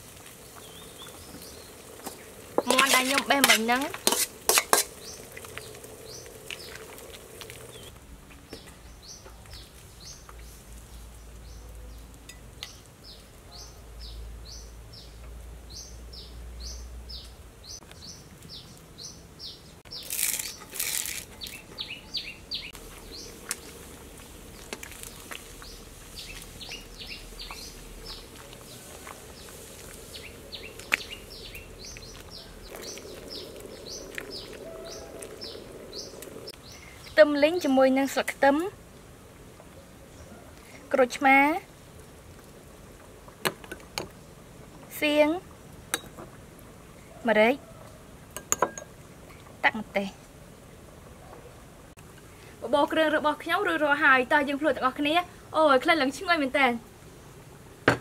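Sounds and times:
small birds chirping: 0:00.3 - 0:38.2.

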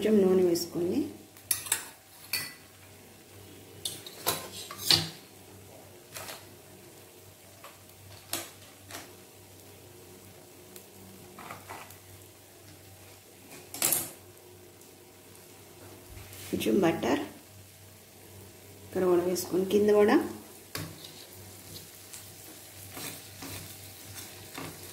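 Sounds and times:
faint steady hum: 0:00.0 - 0:24.9
kitchen utensils and pans clinking: 0:01.5 - 0:02.6, 0:03.8 - 0:05.2.

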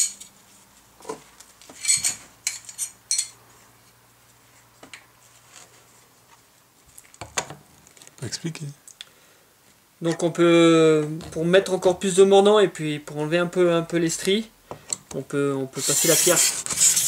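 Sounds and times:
metal tools clinking: 0:01.8 - 0:03.4.

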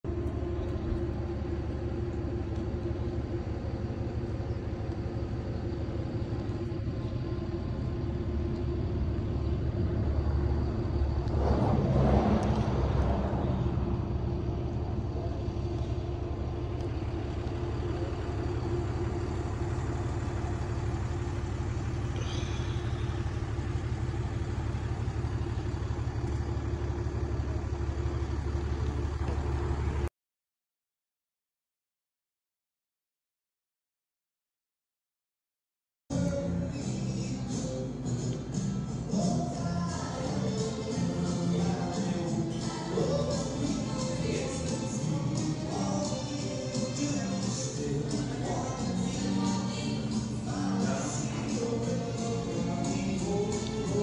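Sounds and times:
steady low hum: 0:00.1 - 0:30.1, 0:36.1 - 0:54.0
vehicle passing: 0:10.0 - 0:15.4.

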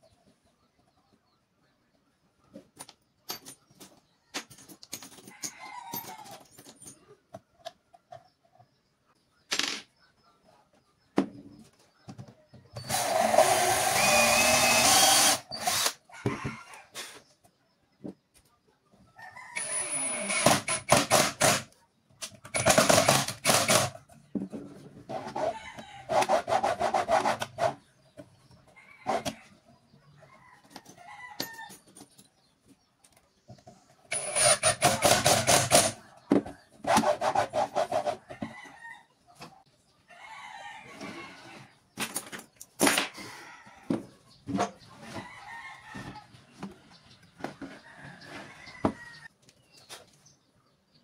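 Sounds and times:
rooster crowing: 0:40.1 - 0:41.6, 0:47.8 - 0:49.3.

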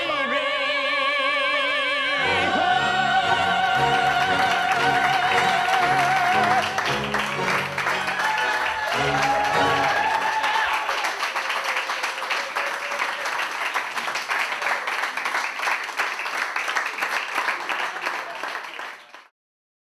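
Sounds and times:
audience applauding: 0:03.8 - 0:19.3.

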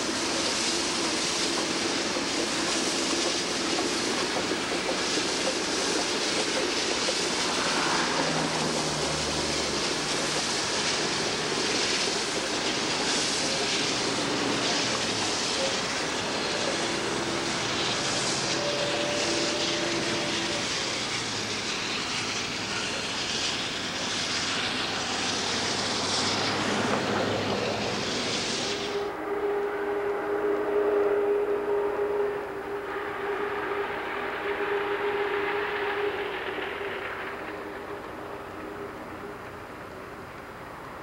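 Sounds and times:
steam train rumbling over bridge: 0:00.0 - 0:41.0.

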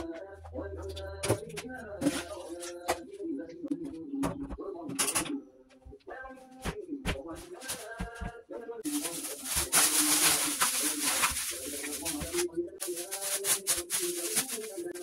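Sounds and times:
plastic bag crinkling: 0:08.8 - 0:15.0.

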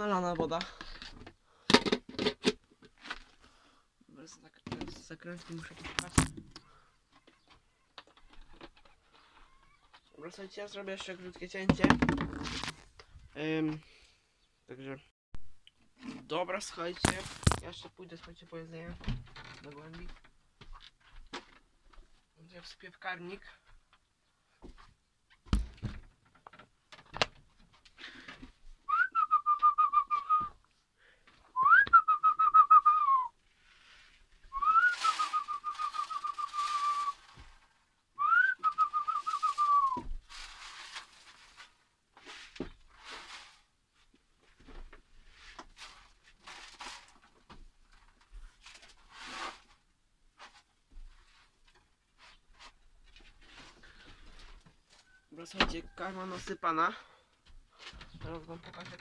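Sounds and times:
person whistling: 0:28.9 - 0:30.6, 0:31.6 - 0:33.4, 0:34.5 - 0:37.2, 0:38.2 - 0:40.0.

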